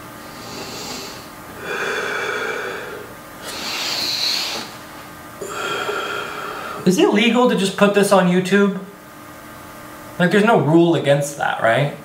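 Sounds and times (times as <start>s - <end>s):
man breathing deeply: 0.1s - 6.9s.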